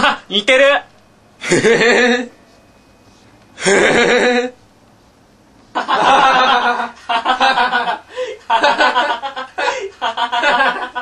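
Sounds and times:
person laughing: 1.4 - 2.3, 3.6 - 4.6, 5.8 - 11.0.

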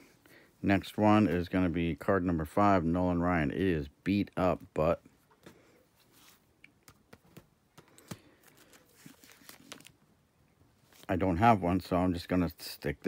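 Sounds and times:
soft rustling of plastic sleeves: 5.0 - 12.8.

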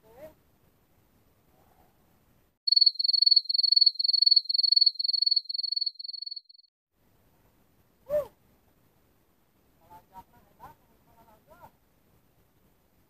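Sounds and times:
cricket chirping: 2.7 - 6.7.

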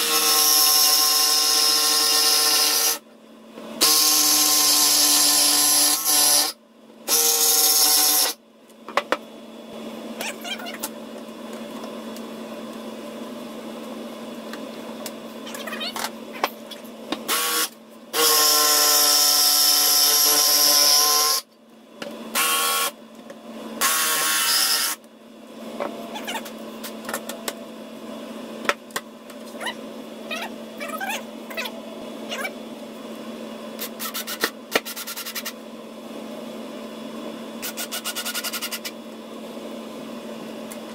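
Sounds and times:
jigsaw cutting: 0.0 - 3.0, 3.8 - 8.4, 17.3 - 21.4, 22.3 - 23.0, 23.8 - 25.0.

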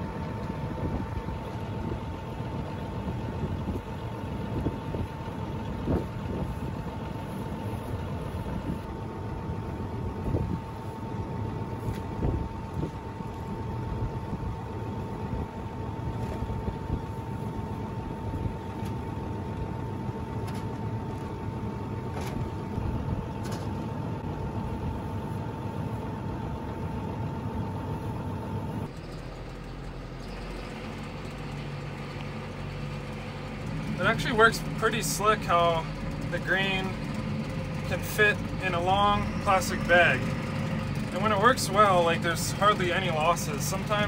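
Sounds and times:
wind buffeting microphone: 0.0 - 25.2
engine hum inside tractor cab: 0.0 - 44.0
engine idling: 0.0 - 44.0.

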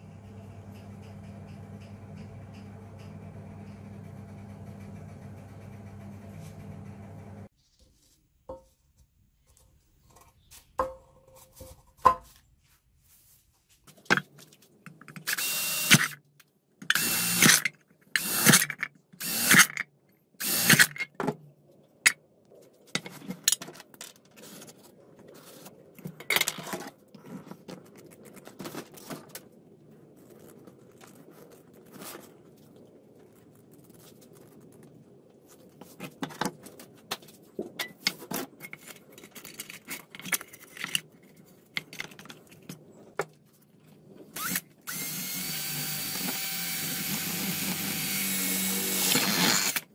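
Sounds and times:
power drill boring metal: 15.3 - 16.2, 16.9 - 17.6, 18.2 - 19.7, 20.4 - 21.0, 44.4 - 49.8.

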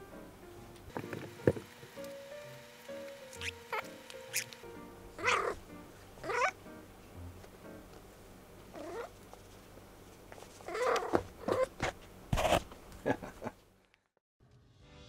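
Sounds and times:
cat meowing: 5.2 - 5.6, 6.2 - 6.6, 8.8 - 9.1, 10.7 - 11.7.

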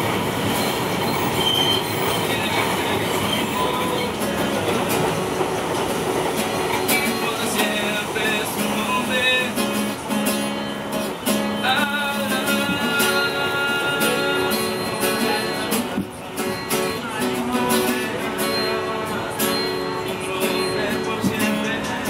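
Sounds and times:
acoustic guitar strumming: 0.0 - 22.0
man singing: 2.2 - 5.6, 6.4 - 22.0.

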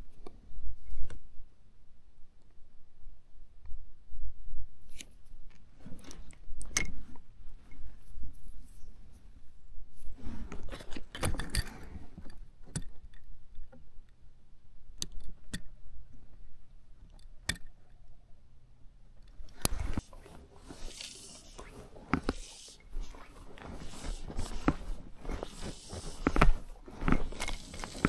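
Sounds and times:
rustling of hands and sleeves: 4.8 - 12.5, 19.3 - 28.0.

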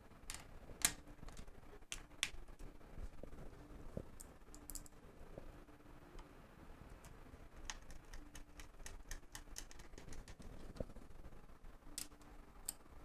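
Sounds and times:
screwdriver clicks and taps: 7.6 - 10.4.

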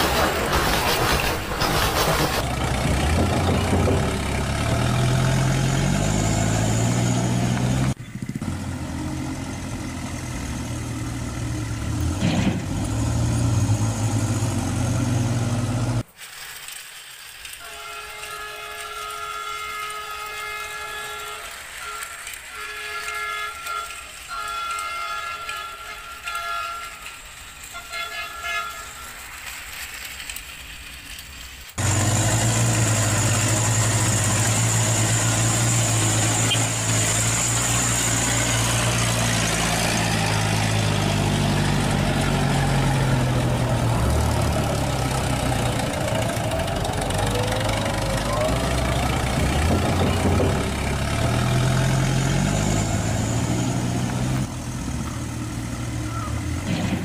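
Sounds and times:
toy train motor whir: 16.0 - 39.2
electronic horn-like tones: 17.6 - 29.3, 35.0 - 38.6.

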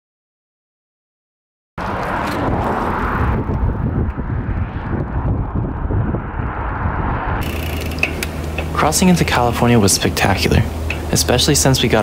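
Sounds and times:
wind buffeting microphone: 1.8 - 9.4.

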